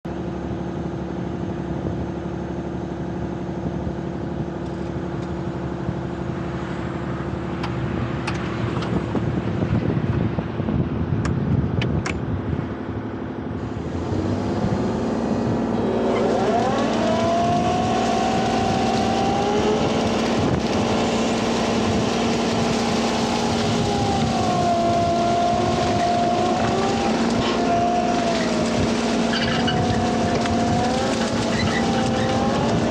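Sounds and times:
diesel engine running: 0:00.0 - 0:32.9
hydraulic brush cutter whine: 0:13.6 - 0:32.9.

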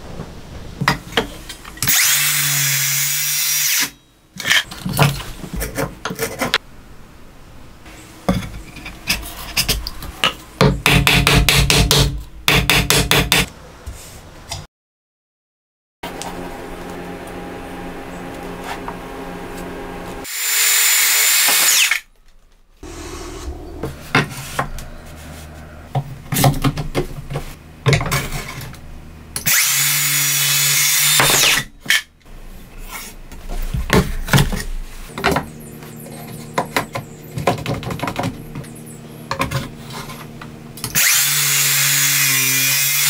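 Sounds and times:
power tool whining: 0:16.2 - 0:22.0, 0:22.8 - 0:25.2, 0:40.8 - 0:43.0.

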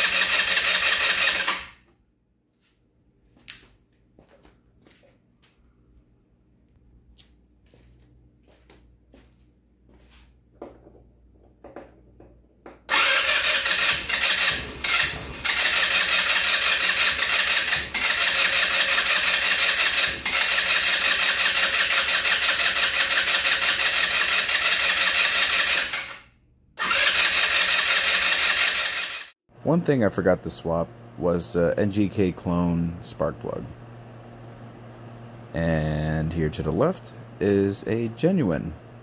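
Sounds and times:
scooter engine starting and running: 0:00.0 - 0:01.8, 0:12.7 - 0:29.4.

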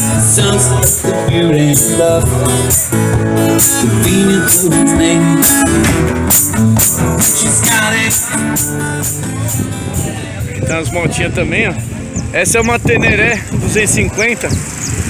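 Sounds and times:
acoustic guitar music: 0:00.0 - 0:14.2
shaker percussion beat: 0:00.7 - 0:10.7.

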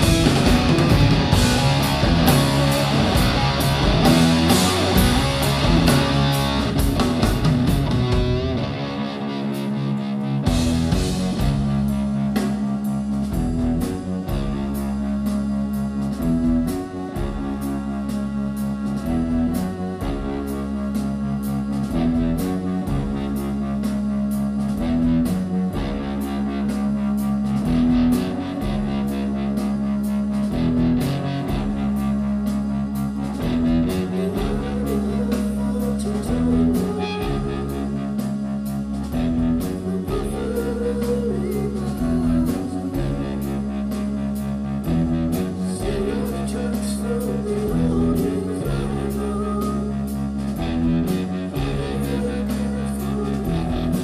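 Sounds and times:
bass notes: 0:00.0 - 0:54.0
drums: 0:00.0 - 0:54.0
electric guitar riff: 0:00.0 - 0:54.0.

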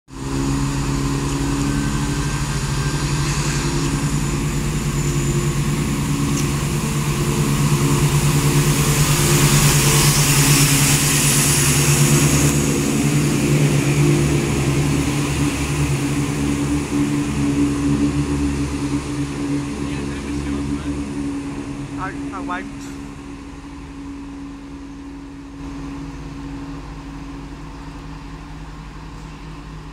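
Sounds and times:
diesel train engines running: 0:00.1 - 0:29.9
wheels hissing on rails: 0:00.1 - 0:29.9.

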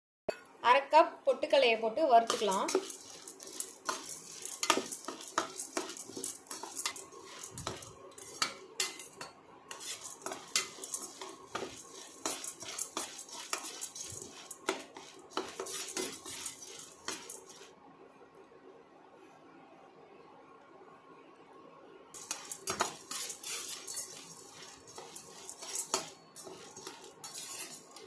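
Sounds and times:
steel spoon scraping metal pan: 0:02.2 - 0:17.7, 0:22.2 - 0:28.0.

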